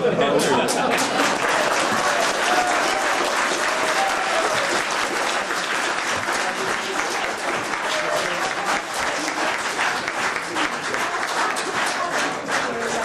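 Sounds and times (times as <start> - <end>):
faint voices: 0.0 - 13.0
audience applauding: 0.4 - 13.0.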